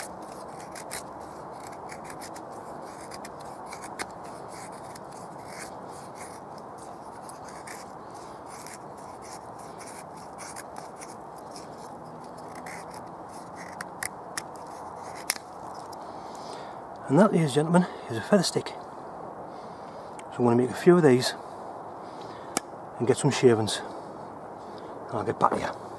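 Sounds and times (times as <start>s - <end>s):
knife scraping wooden stick: 0.0s - 16.0s.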